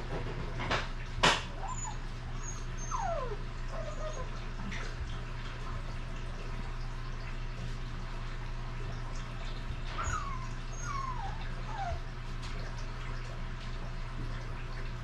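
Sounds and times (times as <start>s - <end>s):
low steady hum: 0.0s - 15.0s
puppy whimpering squeaks: 1.5s - 4.4s, 9.9s - 12.1s.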